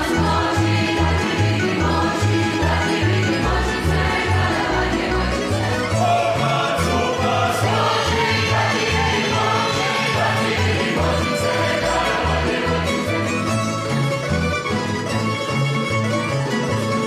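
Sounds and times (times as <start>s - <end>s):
men and women singing together: 0.0s - 13.4s
instrumental accompaniment with bass: 0.0s - 17.0s.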